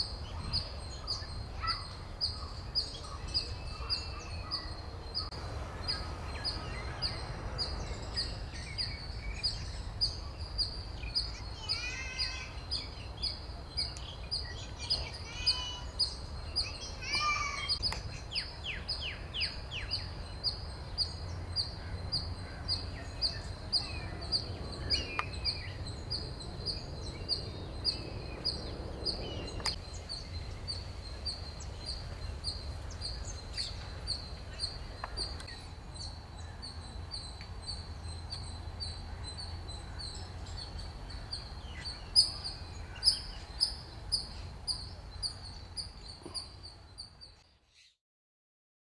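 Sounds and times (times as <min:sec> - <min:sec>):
bird calls and chirps: 0:00.0 - 0:48.0.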